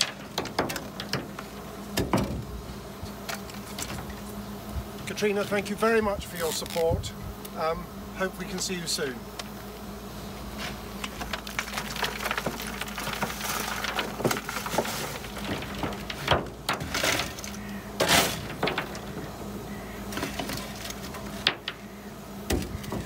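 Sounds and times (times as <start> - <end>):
coal clattering: 0.0 - 2.6, 10.5 - 23.0
steady low hum: 0.0 - 23.0
shovel scraping coal: 10.5 - 19.2, 20.0 - 21.8.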